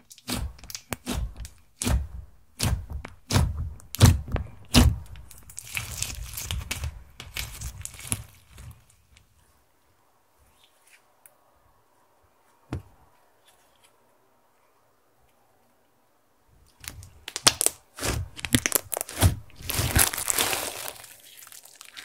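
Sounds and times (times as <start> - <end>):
slime crackling and popping: 0.0 - 8.9, 16.8 - 22.0
fingers poking slime: 0.1 - 8.2, 16.9 - 20.6.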